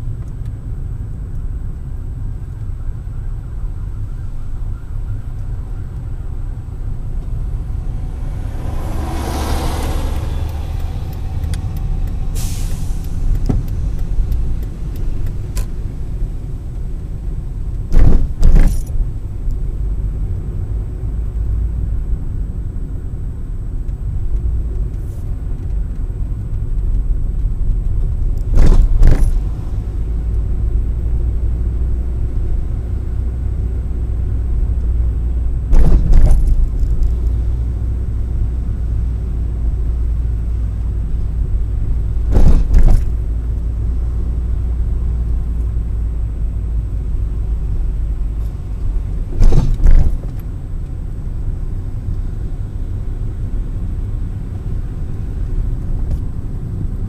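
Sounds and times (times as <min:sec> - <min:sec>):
car road rumble: 0:00.0 - 0:57.0
loud double thumps: 0:17.9 - 0:18.8, 0:35.7 - 0:36.5, 0:42.3 - 0:43.1.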